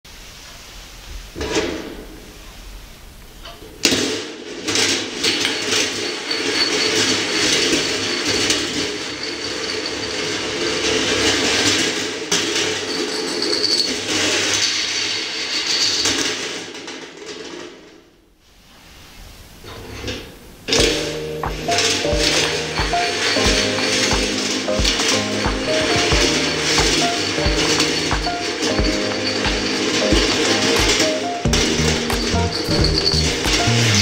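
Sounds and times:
marble rolling on wire tracks: 3.4s - 18.0s, 19.6s - 34.0s.

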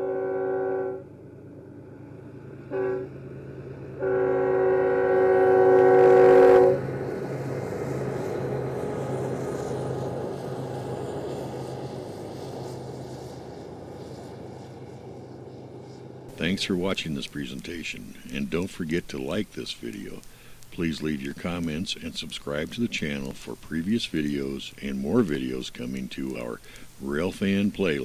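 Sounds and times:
locomotive air horn blasts: 0.0s - 1.1s, 2.7s - 3.1s, 4.0s - 6.9s
train rumbling past: 0.0s - 26.6s.

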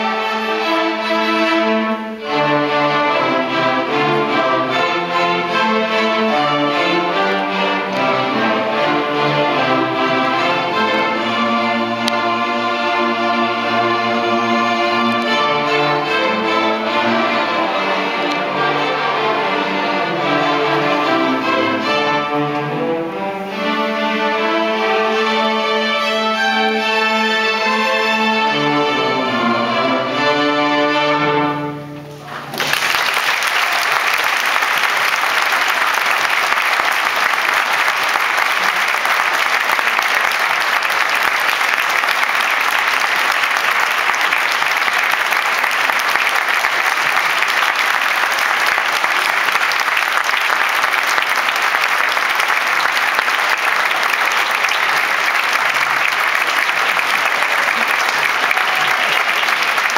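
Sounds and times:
string orchestra chord: 0.0s - 32.1s
audience applause: 32.2s - 59.9s.

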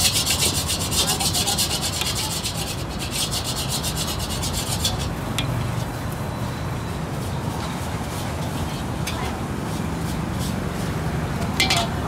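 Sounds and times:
metal spatula scraping a wok: 0.0s - 5.2s, 11.6s - 12.0s.

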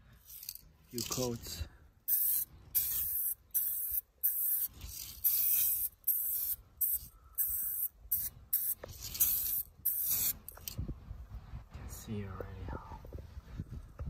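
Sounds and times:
aerosol spray can hissing: 2.1s - 10.4s.

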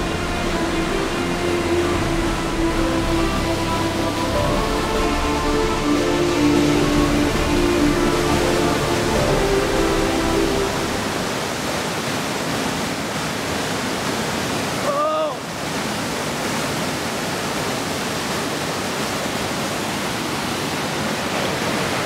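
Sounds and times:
roar of rushing whitewater: 0.0s - 22.0s
person shouting: 14.8s - 15.4s.

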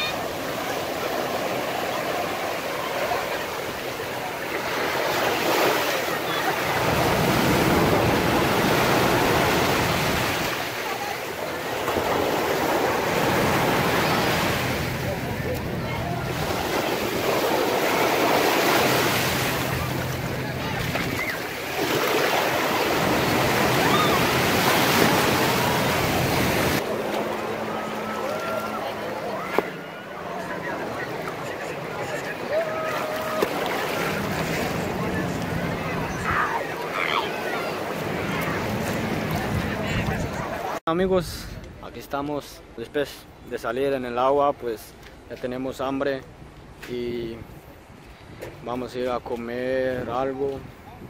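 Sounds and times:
faint calls of swimmers: 0.0s - 40.8s
ocean surf rushing: 0.0s - 40.8s
small waves breaking on sand: 0.0s - 40.8s.

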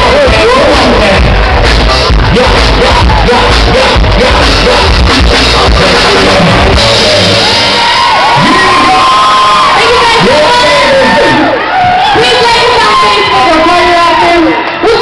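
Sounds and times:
pounding bass beat: 0.0s - 9.2s
dance-pop music over speakers: 0.0s - 15.0s
shouted vocals into microphones: 0.0s - 15.0s.

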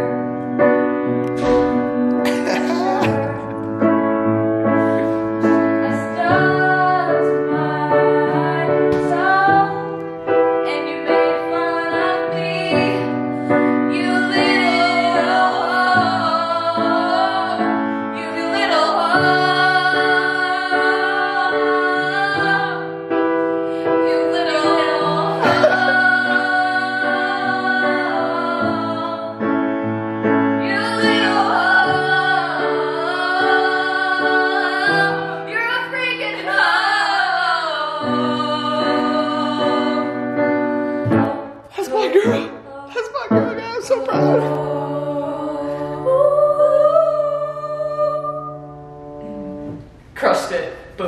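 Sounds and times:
piano chords: 0.0s - 51.0s
woman singing slow song: 24.0s - 29.4s, 44.0s - 48.7s.

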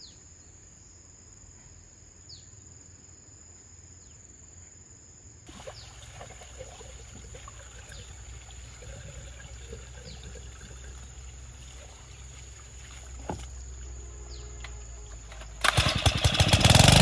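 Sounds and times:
water splashing and trickling: 5.5s - 16.5s.

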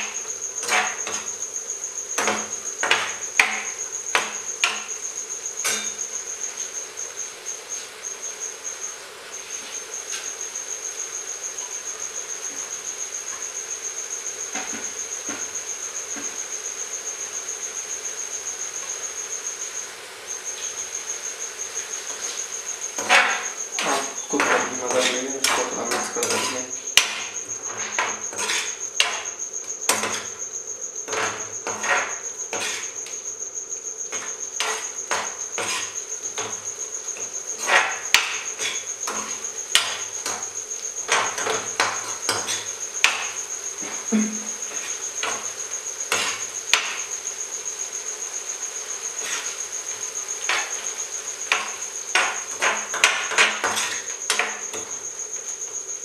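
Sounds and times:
metal spoon scraping steel pan: 0.6s - 1.3s, 23.0s - 29.3s, 29.9s - 30.4s, 31.0s - 33.0s, 34.1s - 36.6s, 37.2s - 43.4s, 51.5s - 54.8s.

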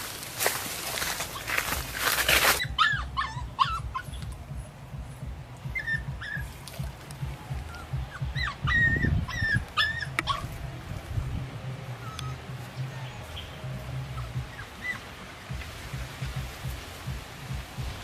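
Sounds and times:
low rumbling noise: 0.0s - 18.0s
puppy whimpering and yipping: 2.5s - 4.4s, 5.7s - 6.6s, 7.8s - 10.6s, 11.9s - 13.3s, 14.1s - 15.1s.

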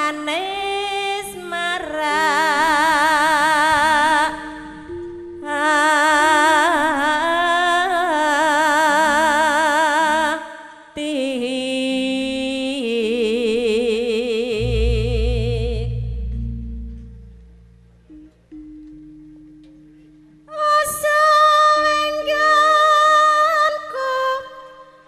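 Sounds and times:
woman singing with wide vibrato: 0.0s - 17.7s, 20.4s - 25.0s
gamelan accompaniment: 4.0s - 7.5s, 14.6s - 21.2s
deep low sound: 14.6s - 18.5s.

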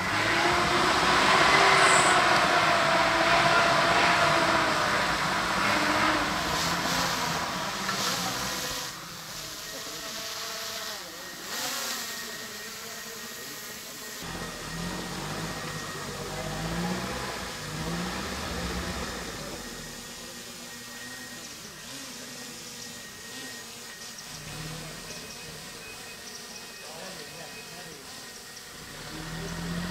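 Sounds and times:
pickup engine revving: 0.0s - 9.8s, 14.2s - 21.2s, 24.3s - 25.9s, 28.5s - 29.9s.

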